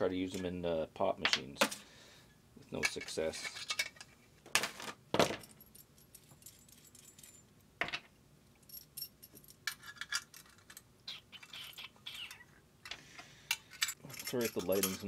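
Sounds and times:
small metal parts clinking: 5.3 - 8.0, 8.6 - 10.9, 13.5 - 15.0.

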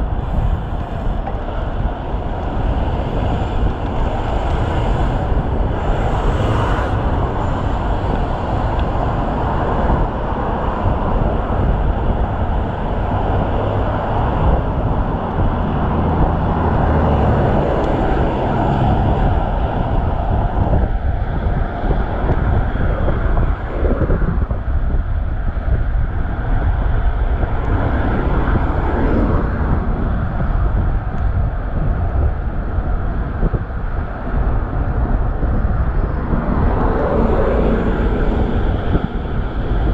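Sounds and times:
road traffic going by: 0.0 - 39.9
wind rushing over microphone: 0.0 - 39.9.

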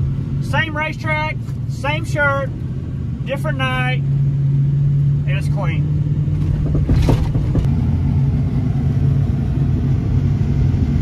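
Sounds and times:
truck engine rolling on gravel: 6.2 - 8.0.

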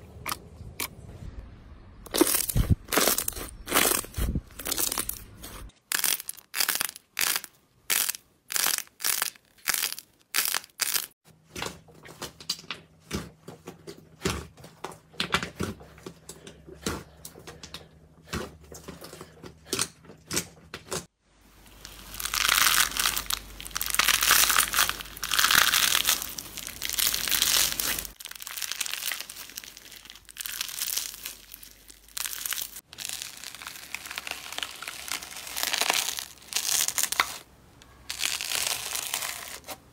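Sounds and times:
slime crackling and squishing: 2.1 - 11.2, 21.7 - 39.9.

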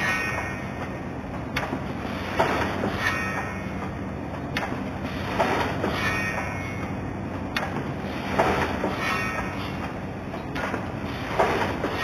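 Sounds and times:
machine hum: 0.0 - 12.0
sharp metallic clack: 1.6 - 4.0, 4.6 - 7.0, 8.4 - 9.9.

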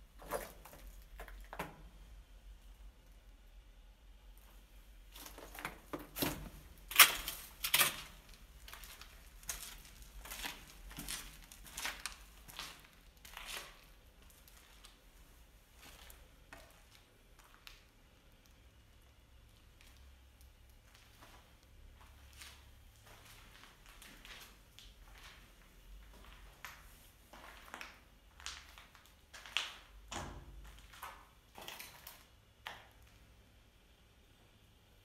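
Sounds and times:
footsteps crunching on rubble: 0.2 - 1.8, 5.1 - 15.0, 20.9 - 32.8.

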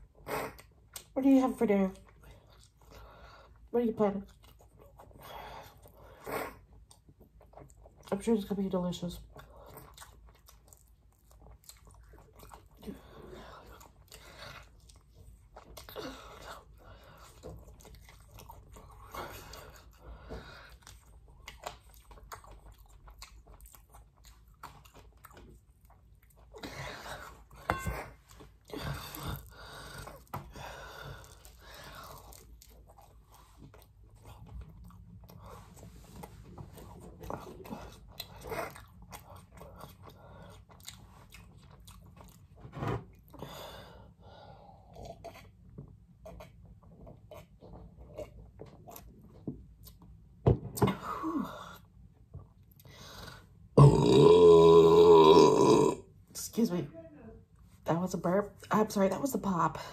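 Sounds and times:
chewing and biting food: 2.0 - 8.5, 9.2 - 43.4, 44.8 - 50.3.

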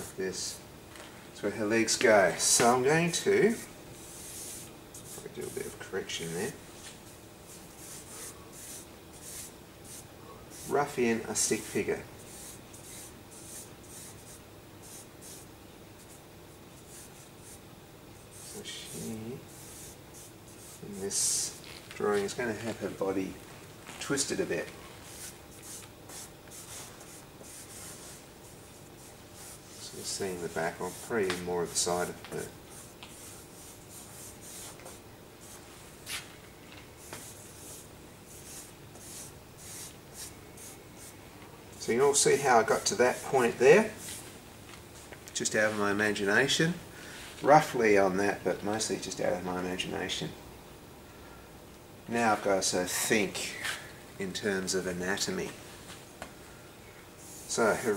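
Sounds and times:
charcoal scratching on paper: 7.8 - 11.7, 25.0 - 28.2, 29.0 - 35.6, 37.0 - 41.1.

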